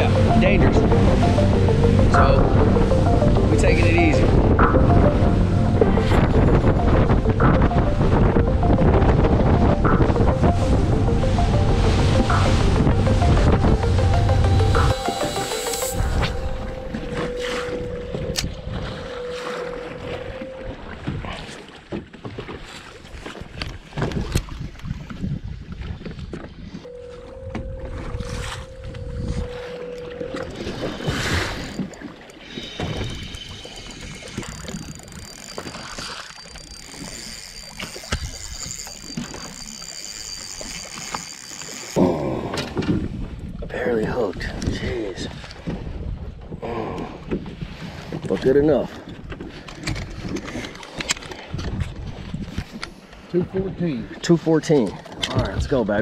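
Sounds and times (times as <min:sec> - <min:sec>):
choppy water around boat: 0:00.0 - 0:56.0
wind buffeting microphone: 0:02.4 - 0:14.8, 0:42.1 - 0:54.2.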